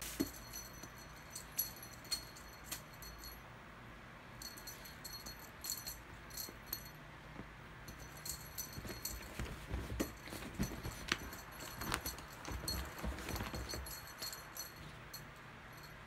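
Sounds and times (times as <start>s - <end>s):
jingle bell jingling: 0.1s - 3.4s, 4.4s - 7.0s, 7.9s - 16.0s
cat scrambling on quilt: 8.4s - 14.7s.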